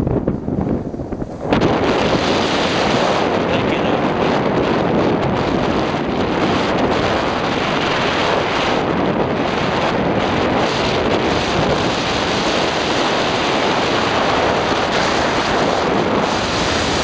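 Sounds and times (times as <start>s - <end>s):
wind rushing over microphone: 0.0s - 17.0s.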